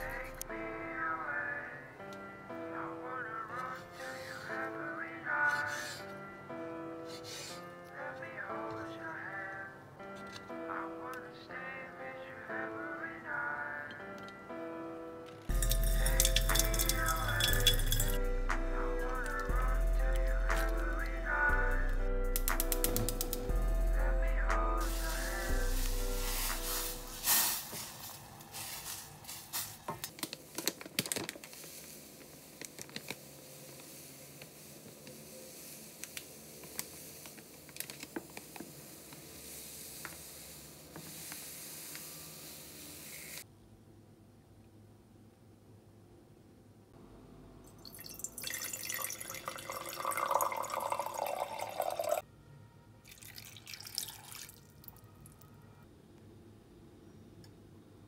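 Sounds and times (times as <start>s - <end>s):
sugar pattering into glass container: 15.5s - 18.2s, 47.8s - 52.2s, 53.1s - 54.7s
water pouring into a glass cup: 15.5s - 18.2s, 47.7s - 52.2s, 53.1s - 55.0s
peels hissing in hot syrup: 24.8s - 29.8s, 31.4s - 43.4s.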